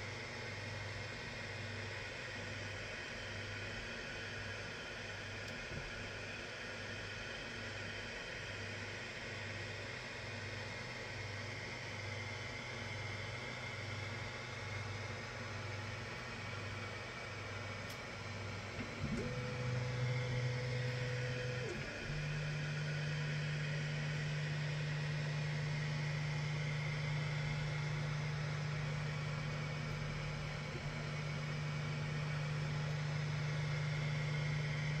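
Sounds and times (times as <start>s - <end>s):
stepper motors humming and whining: 14.0s - 35.0s.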